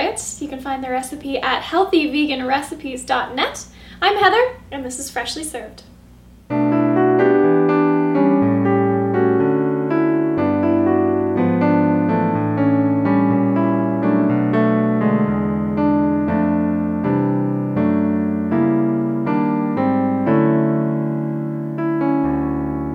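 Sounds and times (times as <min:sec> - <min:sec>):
piano music: 0:06.5 - 0:22.9.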